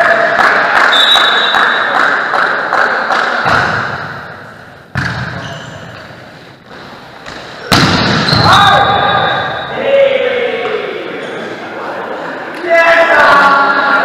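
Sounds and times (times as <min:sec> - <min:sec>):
volleyball hits: 0:03.1 - 0:06.1, 0:06.7 - 0:09.5
players' voices: 0:07.2 - 0:14.0.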